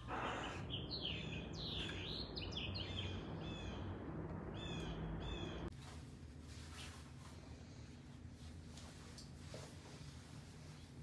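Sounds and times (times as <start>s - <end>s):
songbirds chirping: 0.0s - 5.7s.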